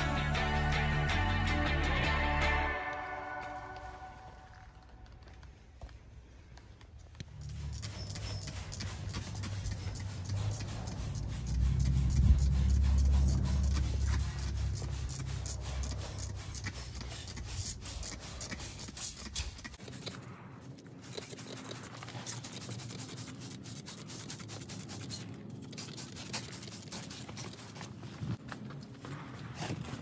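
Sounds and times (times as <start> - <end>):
low hum: 7.1 - 18.6.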